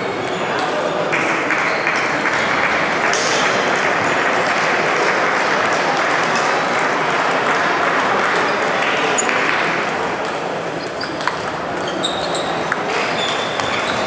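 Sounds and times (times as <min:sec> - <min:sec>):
applause: 0:01.1 - 0:09.8
table tennis balls clicking: 0:06.6 - 0:14.0.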